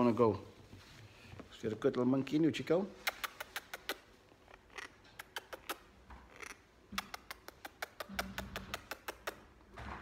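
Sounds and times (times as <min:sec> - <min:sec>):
wet kissing clicks: 0:03.0 - 0:09.6.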